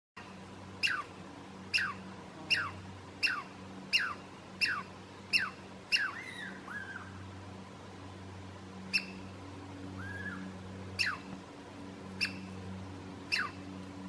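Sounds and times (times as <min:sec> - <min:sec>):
squirrel chirping alarm call: 0:00.8 - 0:07.2, 0:08.9 - 0:09.3, 0:10.0 - 0:11.3, 0:12.2 - 0:12.6, 0:13.3 - 0:13.6.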